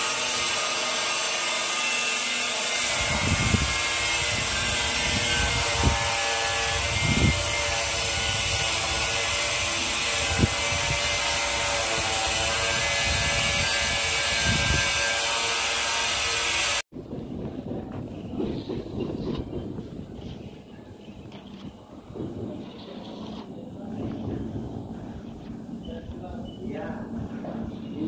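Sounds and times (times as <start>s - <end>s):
putty knife scraping wall: 21.2s - 24.5s.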